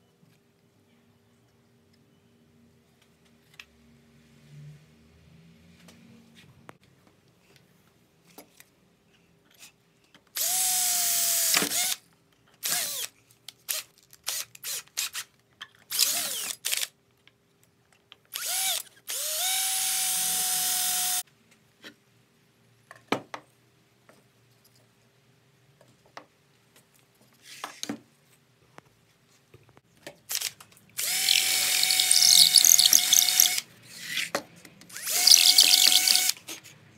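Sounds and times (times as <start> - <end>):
drill boring through metal: 10.4 - 12.0, 18.4 - 21.2, 31.0 - 33.6, 34.9 - 36.4
drill trigger blips: 31.0 - 33.6, 34.9 - 36.4.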